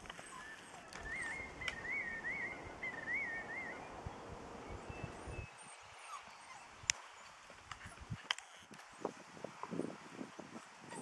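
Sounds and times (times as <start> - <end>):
puppy whining: 0.2 - 3.1.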